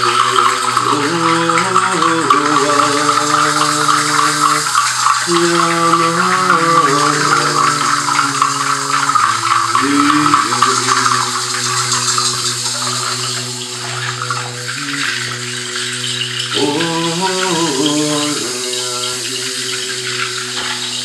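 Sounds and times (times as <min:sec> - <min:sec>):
low held notes: 0:00.0 - 0:21.0.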